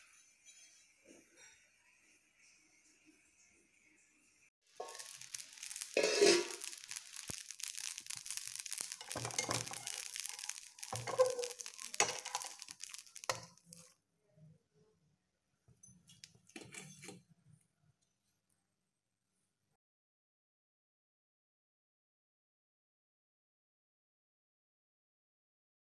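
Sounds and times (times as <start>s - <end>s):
batter sizzling in a pan: 4.7s - 13.9s.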